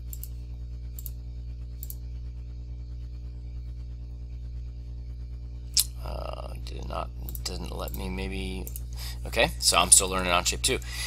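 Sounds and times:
electrical hum: 0.0 - 11.0
faint clicks: 0.1 - 1.2, 1.8 - 2.0.

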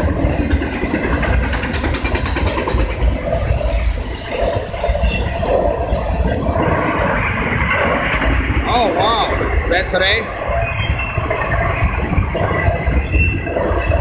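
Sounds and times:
quick train wheel clicks: 0.0 - 4.2
freight train rumbling and rattling: 0.0 - 14.0.

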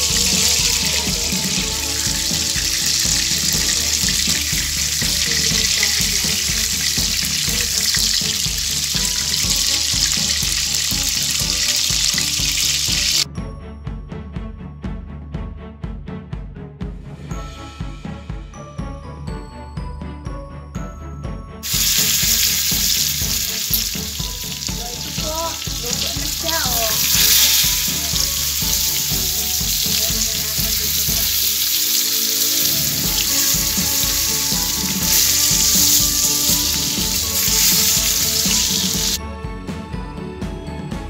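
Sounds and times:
squid sizzling in hot oil: 0.0 - 13.3, 21.6 - 39.2.

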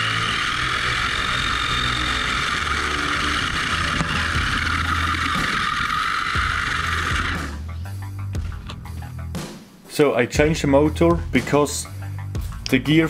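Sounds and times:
gritty mechanical rattle: 0.0 - 7.7
electric motor whining: 0.0 - 7.8.

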